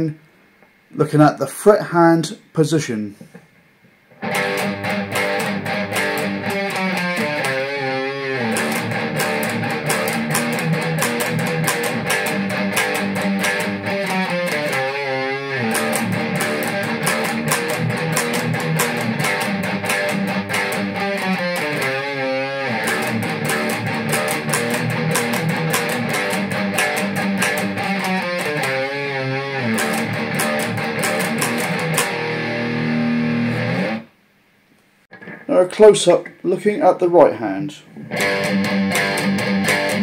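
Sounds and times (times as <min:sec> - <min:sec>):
distorted electric guitar riff: 0:04.1 - 0:34.2, 0:35.1 - 0:35.5, 0:37.9 - 0:40.0.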